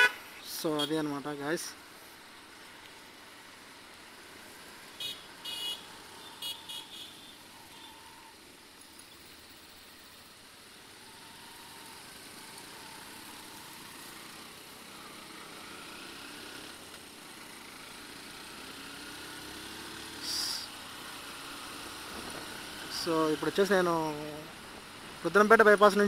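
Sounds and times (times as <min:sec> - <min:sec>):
motorcycle accelerating: 0:10.8 - 0:25.3.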